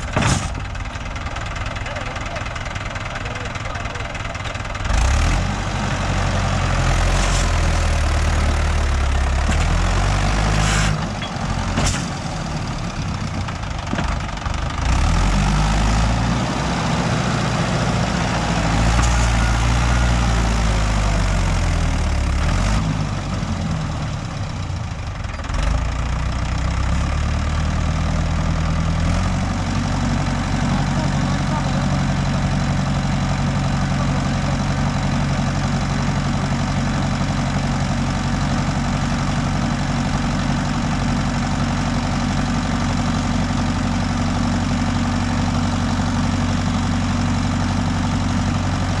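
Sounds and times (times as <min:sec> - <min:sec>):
tractor diesel engine under load: 0:00.0 - 0:49.0.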